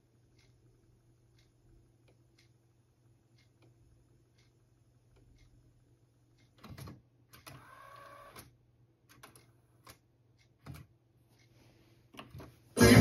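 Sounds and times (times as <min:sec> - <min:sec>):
whirring whine of tape rewinding: 0:07.5 - 0:08.5.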